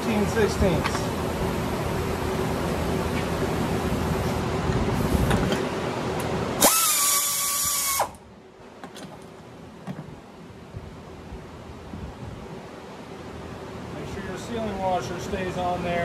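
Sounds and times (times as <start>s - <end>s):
steady background hiss: 0.0s - 16.0s
air ratchet whine: 6.6s - 8.2s.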